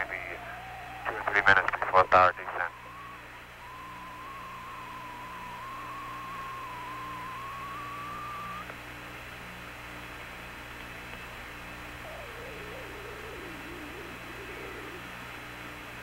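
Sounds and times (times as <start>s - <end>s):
wavering whistle-like tone: 0.0s - 8.8s, 12.0s - 15.4s
faint pulsing: 0.0s - 16.0s
radio hiss and hum: 0.0s - 16.0s.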